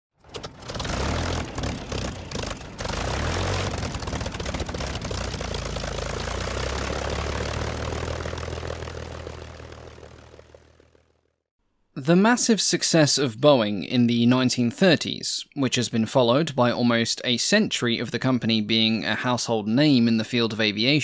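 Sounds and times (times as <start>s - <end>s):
propeller aircraft engine droning: 0.2s - 11.4s.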